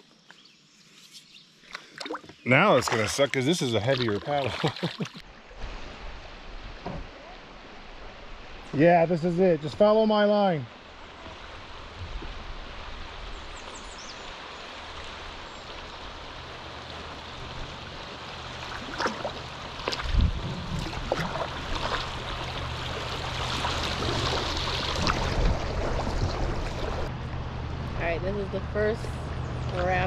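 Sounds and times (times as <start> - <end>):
sharp splashes and knocks: 1.7 - 5.2, 17.3 - 27.1
rushing river water: 1.8 - 27.2.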